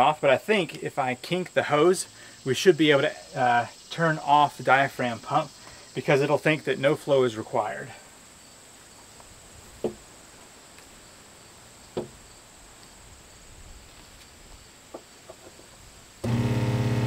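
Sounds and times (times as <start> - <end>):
faint knocks from hose handling: 9.8 - 10.0
pump motor humming: 16.2 - 17.0.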